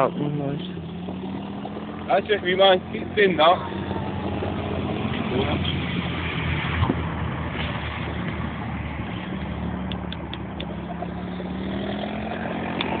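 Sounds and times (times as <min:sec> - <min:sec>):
quad bike engine running: 0:09.8 - 0:13.0.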